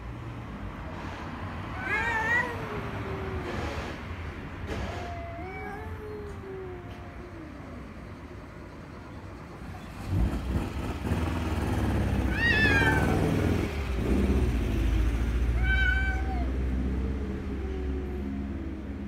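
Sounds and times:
cats meowing: 0:01.7 - 0:03.9, 0:04.7 - 0:08.4, 0:12.2 - 0:13.7, 0:15.4 - 0:18.9.

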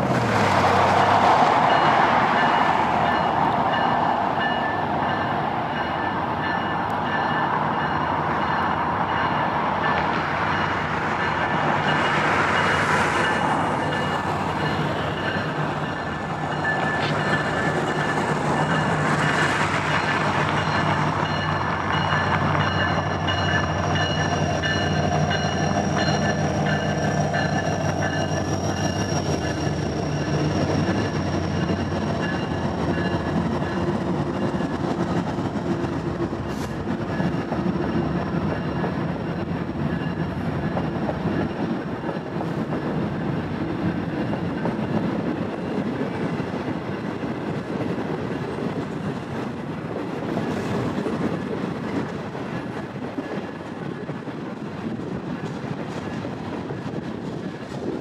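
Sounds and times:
diesel locomotive engines droning: 0:00.0 - 0:58.0.

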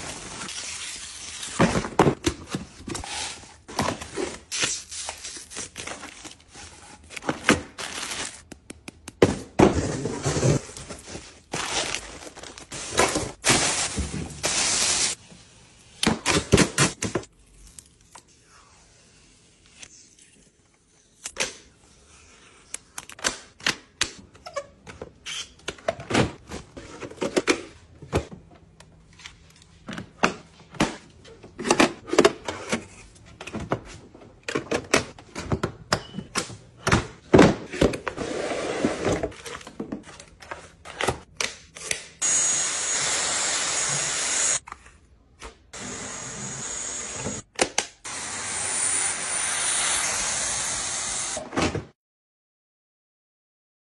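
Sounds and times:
cardboard and plastic rustling: 0:09.7 - 0:14.8.

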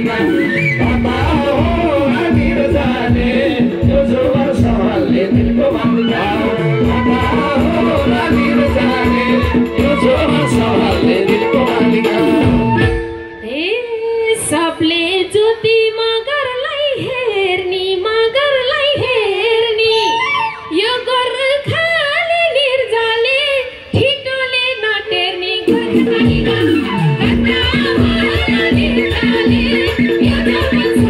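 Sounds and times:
full band playing: 0:00.0 - 0:15.8, 0:25.0 - 0:31.0
woman singing folk melody: 0:13.4 - 0:31.0.

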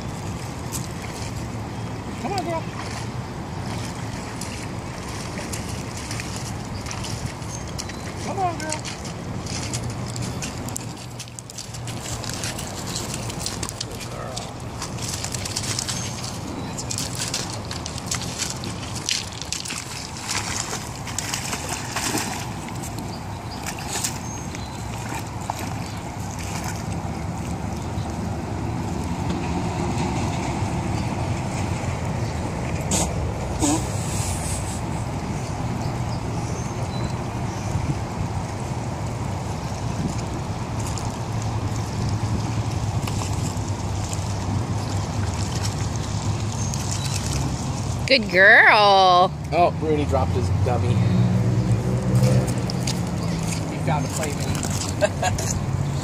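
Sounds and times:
dog splashing through water: 0:00.0 - 0:56.0
wind buffeting microphone: 0:34.8 - 0:48.1.

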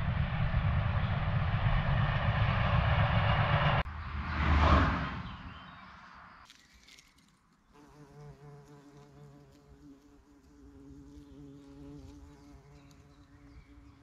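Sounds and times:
insect buzzing: 0:06.5 - 0:14.0.

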